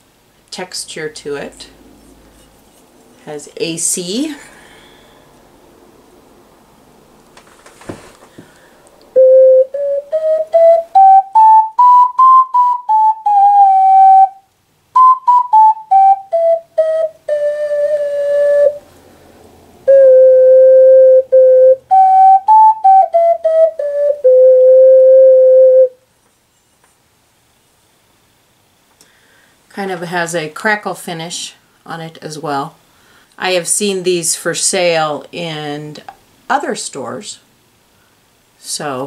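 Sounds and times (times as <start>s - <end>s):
ocarina melody: 1.5s - 3.9s, 9.1s - 19.1s, 19.8s - 26.0s
breath or handling noise: 7.5s - 9.0s.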